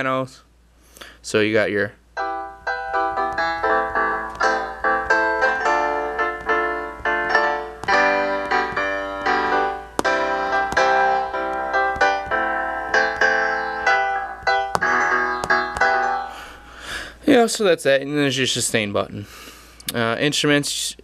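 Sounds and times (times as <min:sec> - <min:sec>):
piano chords: 0:02.2 - 0:17.4.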